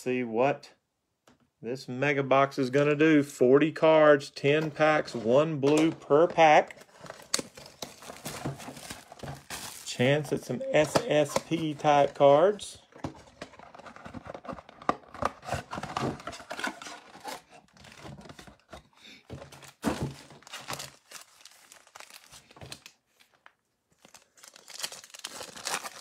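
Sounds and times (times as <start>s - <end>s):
cardboard and foil rustling: 6.9s - 12.1s, 13.2s - 26.0s.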